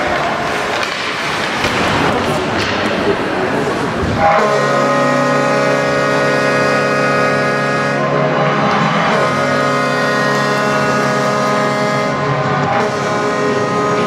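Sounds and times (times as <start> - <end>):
arena goal horn blaring: 4.1 - 14.0.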